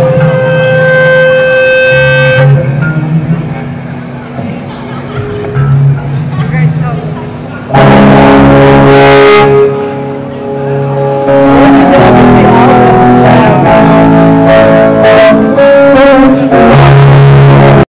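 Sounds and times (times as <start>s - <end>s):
live rock band playing: 0.0s - 3.6s, 7.8s - 17.8s.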